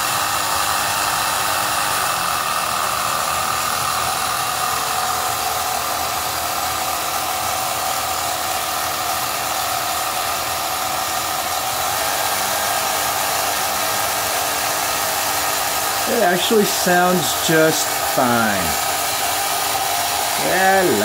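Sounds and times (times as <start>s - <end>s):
model ship motors whirring: 0.0s - 21.0s.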